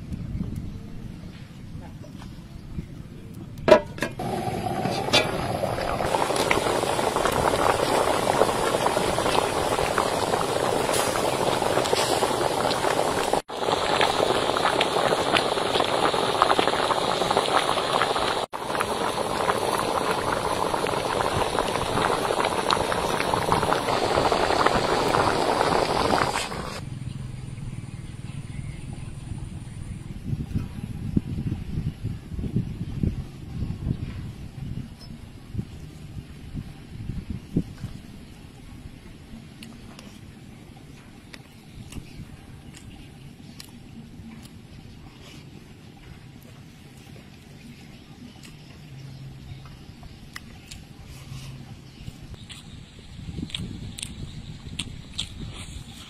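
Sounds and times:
metal lid clanking on pot: 0:03.7 - 0:04.2
water boiling hard: 0:04.1 - 0:26.8.

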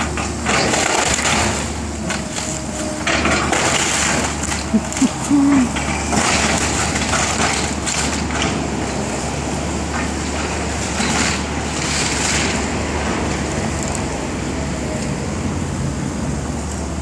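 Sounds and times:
wood and debris crunching: 0:00.0 - 0:08.9
excavator diesel engine running: 0:00.0 - 0:17.0.

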